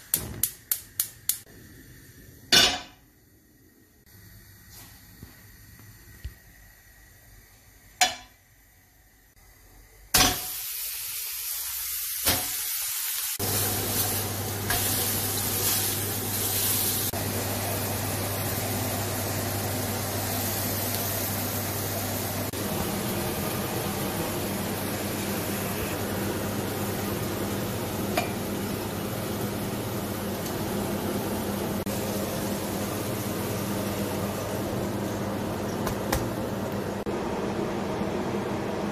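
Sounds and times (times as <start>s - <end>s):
steaks sizzling in a pan: 10.4s - 21.9s.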